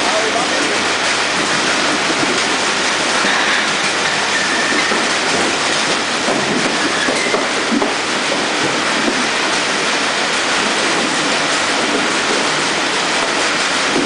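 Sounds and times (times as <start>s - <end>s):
conveyor machinery rattling: 0.0s - 14.0s.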